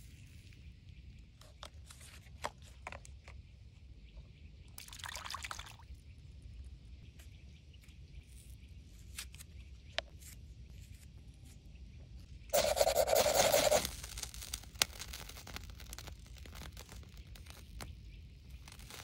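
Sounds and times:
pad tearing: 12.6s - 17.9s.

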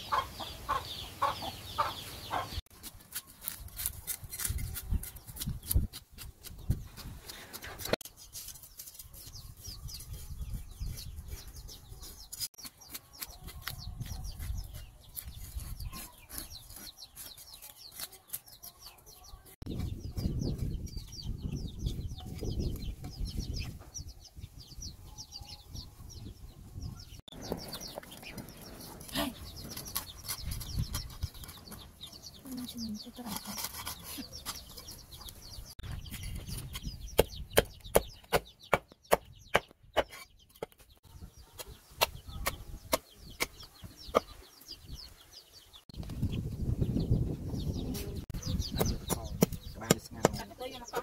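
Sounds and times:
knife scraping fish scales: 33.2s - 34.9s.

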